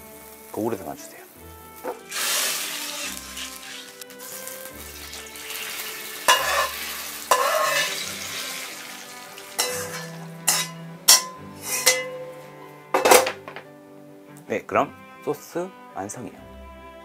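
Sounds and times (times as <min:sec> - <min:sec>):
sauce pouring into bowl: 0:02.1 - 0:09.6
ladle clinking on metal: 0:06.3 - 0:08.0, 0:09.6 - 0:12.4.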